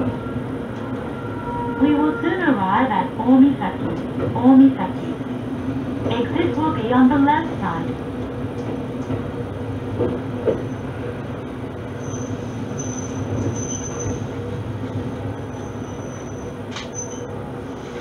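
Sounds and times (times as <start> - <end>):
diesel railcar running: 0.0 - 18.0
high brake squeal: 12.0 - 14.3, 15.5 - 17.3.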